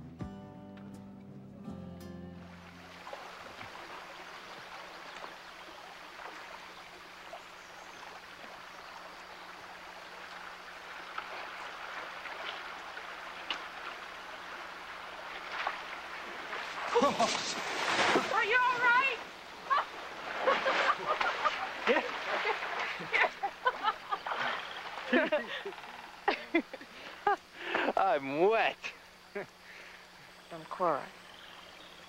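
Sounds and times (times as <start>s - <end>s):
creek water over rocks: 2.3s - 32.0s
sharp splashes: 2.5s - 25.6s.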